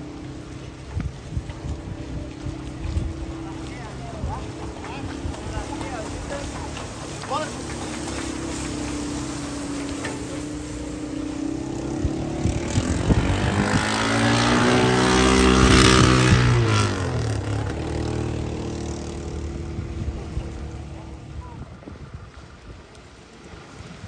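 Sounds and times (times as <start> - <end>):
motor passing by: 0.0 - 22.7.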